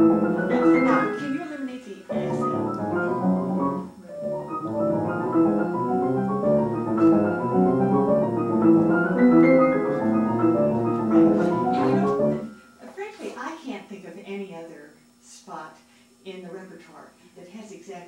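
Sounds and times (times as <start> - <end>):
grand piano quick passage: 0.0 - 1.2, 2.1 - 12.6
second piano playing: 0.0 - 12.8.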